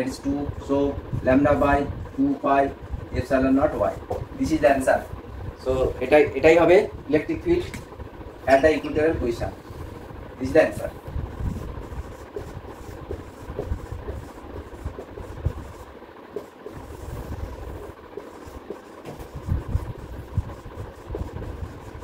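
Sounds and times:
low background rumble: 0.0 - 22.0
marker writing on whiteboard: 11.4 - 22.0.

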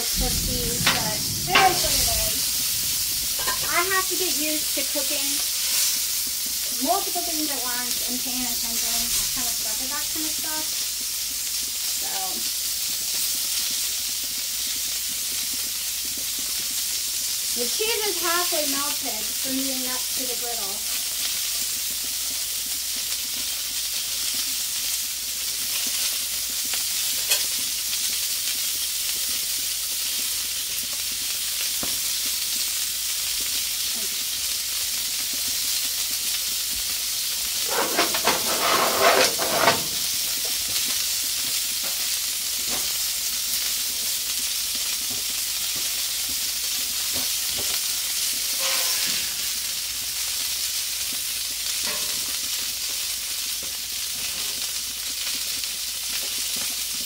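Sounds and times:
food sizzling on a griddle: 0.0 - 57.0
metal spatula scraping griddle: 3.1 - 4.2, 37.5 - 40.3, 48.5 - 49.6, 51.8 - 52.4.

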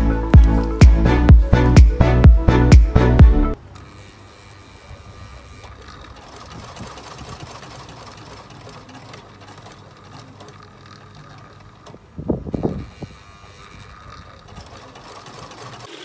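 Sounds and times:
electric sewing machine running: 3.6 - 11.9, 12.5 - 16.0.

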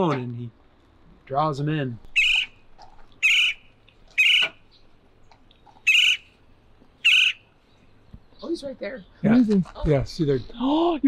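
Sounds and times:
woodpecker calls through phone speaker: 2.0 - 2.6, 3.2 - 4.7, 5.8 - 6.3, 7.0 - 7.6.

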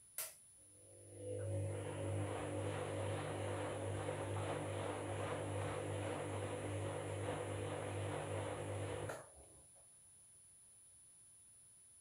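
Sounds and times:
washing machine motor hum: 0.8 - 9.4.

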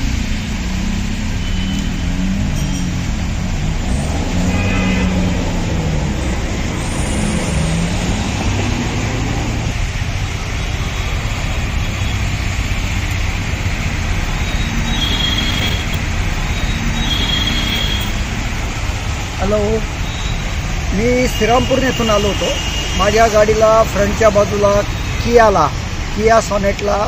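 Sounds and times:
engine note rising and falling: 0.0 - 19.2
street traffic: 0.0 - 27.0.

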